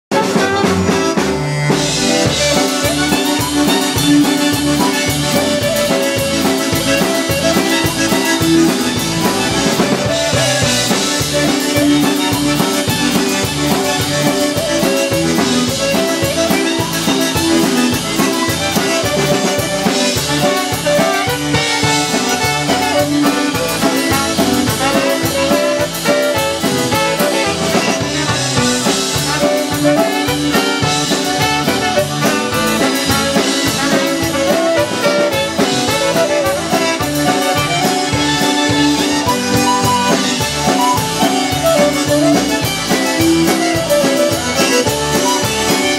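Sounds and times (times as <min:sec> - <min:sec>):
polka band playing: 0:00.0 - 0:45.9.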